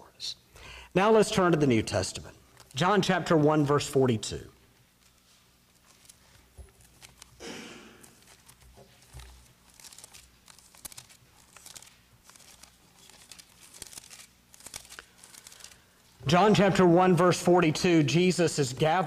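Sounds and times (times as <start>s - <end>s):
thin pages being turned: 5.0s - 7.4s, 8.0s - 15.9s.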